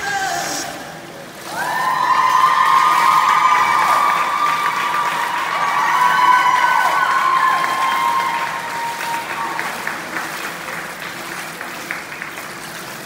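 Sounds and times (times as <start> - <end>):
high-pitched cheering voices: 1.4 - 10.0
spectators applauding: 1.4 - 13.0.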